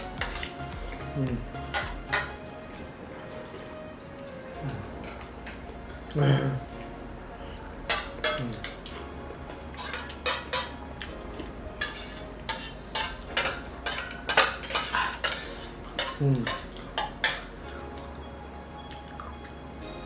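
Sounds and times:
spoons clinking on steel plates: 0.2 - 0.6, 1.6 - 2.4, 7.9 - 9.0, 9.7 - 11.1, 11.8 - 17.6.

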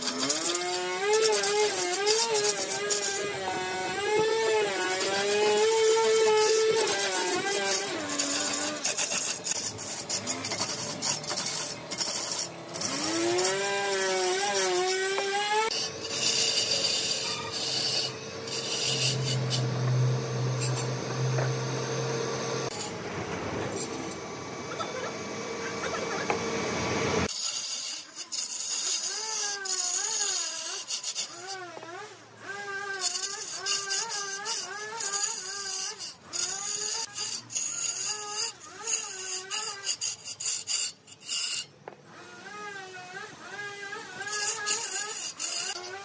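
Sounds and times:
cutting tool scraping wood: 0.0 - 23.0, 27.2 - 41.8, 42.4 - 46.0
lathe motor hum: 12.5 - 27.3
wavering pitched tone: 19.0 - 23.0.

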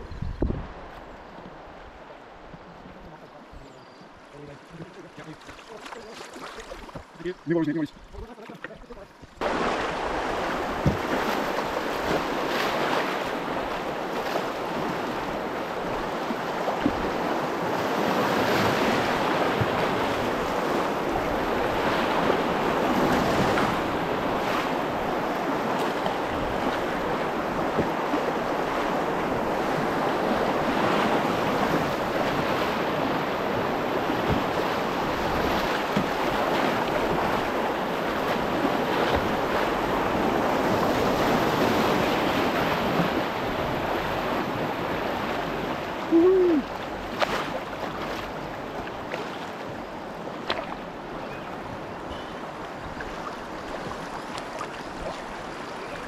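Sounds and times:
wind buffeting microphone: 0.0 - 2.7
paddle strokes in water: 0.4 - 56.0
river water rushing: 4.2 - 56.0.

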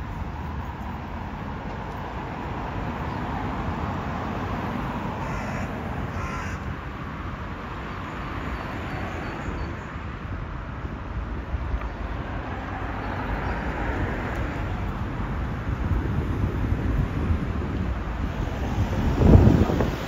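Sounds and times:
city traffic rumbling: 0.0 - 20.0
crow cawing: 5.2 - 6.7.

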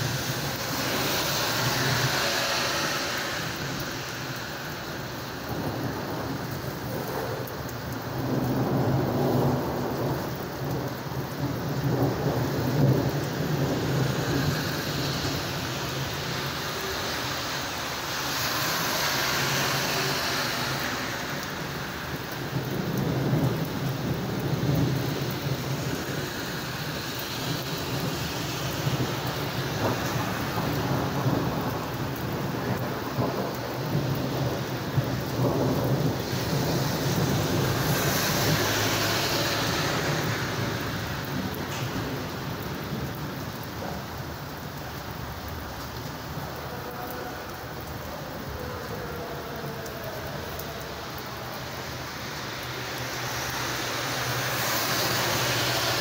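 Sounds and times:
thunder rumbling: 0.0 - 54.5
heavy rain pouring: 0.0 - 56.0.

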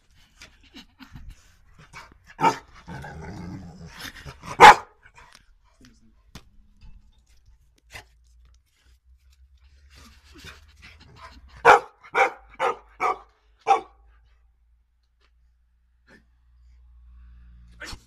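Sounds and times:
dog barking: 2.4 - 2.7, 4.5 - 5.0, 11.6 - 14.0.

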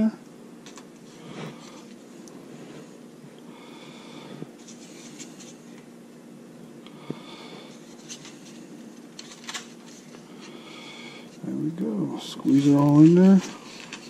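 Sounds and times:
low room hum: 0.0 - 14.0
soft scrapes of food handling: 1.0 - 3.1, 3.7 - 5.9, 7.1 - 11.5.

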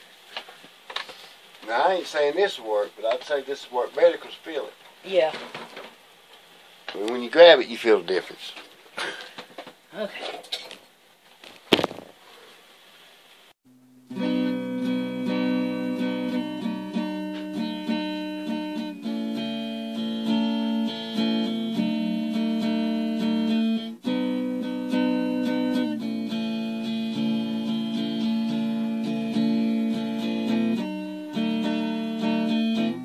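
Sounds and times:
acoustic guitar music: 13.7 - 33.0.

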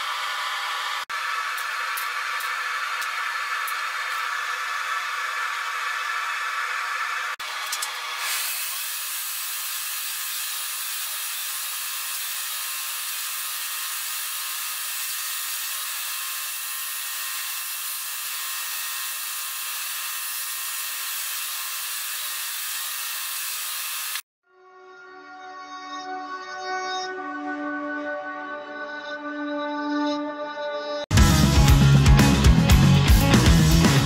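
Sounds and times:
belt grinder sanding hiss: 0.0 - 24.2.

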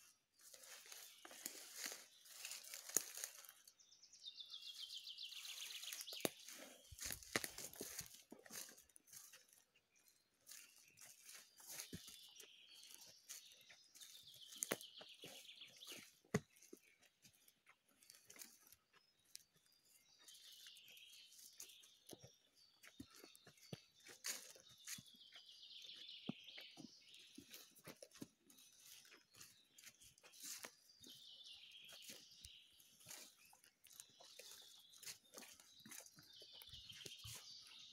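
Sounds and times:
footsteps crunching on dry leaves: 0.0 - 3.7, 4.6 - 37.9
twigs snapping: 5.9 - 8.6.

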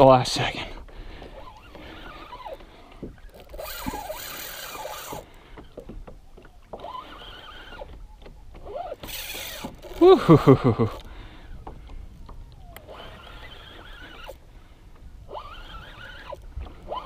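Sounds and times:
water lapping against kayak hull: 0.7 - 17.0
fishing reel whining: 1.3 - 5.7, 6.6 - 11.6, 12.3 - 14.5, 15.2 - 17.0.

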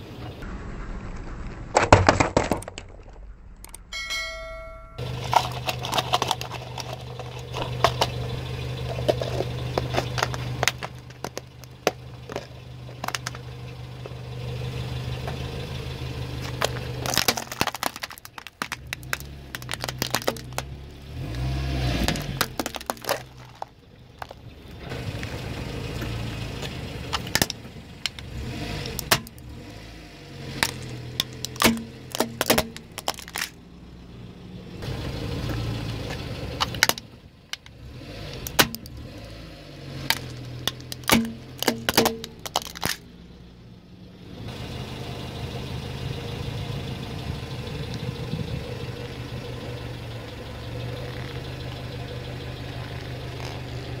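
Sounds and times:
car engine idling: 0.0 - 0.8, 1.7 - 54.0
plastic toys dropping into tub: 1.7 - 3.2, 5.2 - 8.2, 9.0 - 13.4, 16.5 - 20.7, 22.0 - 24.4, 30.6 - 33.6, 40.0 - 43.0
plastic cracking and crunching: 1.7 - 3.8, 5.2 - 8.2, 8.9 - 13.4, 16.4 - 20.7, 22.0 - 24.4, 30.6 - 33.6, 40.1 - 43.0.

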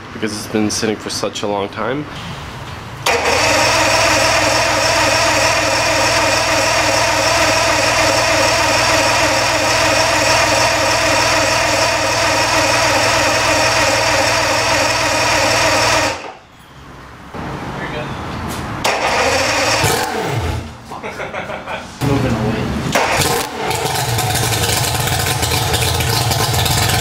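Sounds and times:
outboard motor idling: 23.2 - 27.0.

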